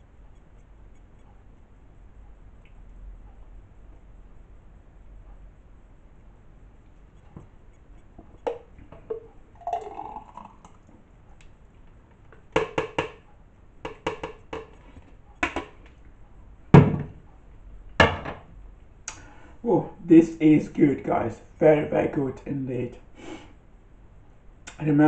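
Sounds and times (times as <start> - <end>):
thick smoothie pouring: 9.1 - 10.8
loud thumps: 16.7 - 17.2.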